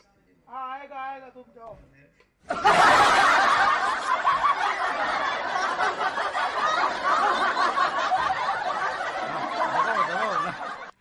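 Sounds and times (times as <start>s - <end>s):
laughter: 2.5s - 11.0s.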